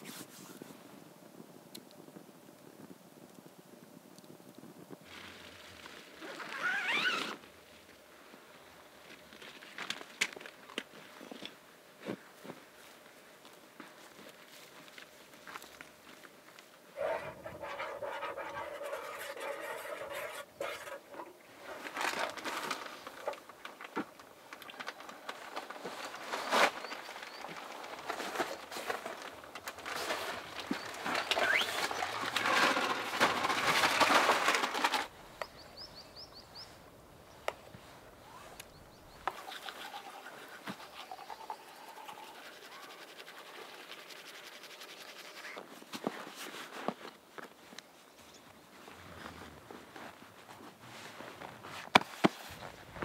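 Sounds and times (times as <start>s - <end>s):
cooking gear rustling and scraping: 14.0s - 35.1s.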